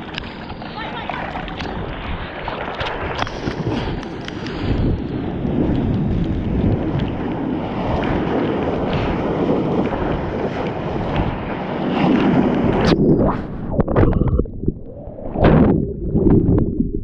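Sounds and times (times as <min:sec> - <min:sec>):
water rushing and splashing: 0:00.0 - 0:17.0
wind buffeting microphone: 0:00.0 - 0:17.0.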